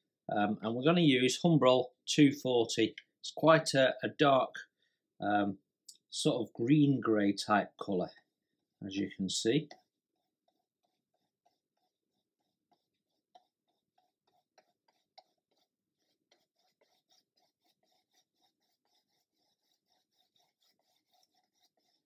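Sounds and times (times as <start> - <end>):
paintbrush scratching textured surface: 7.6 - 22.0.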